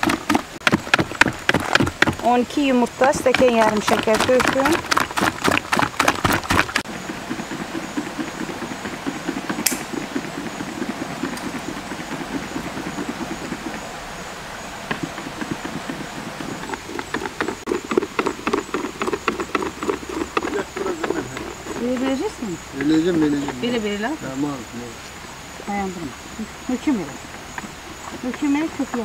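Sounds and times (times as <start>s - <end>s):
whisk beating in plastic bucket: 0.0s - 13.9s.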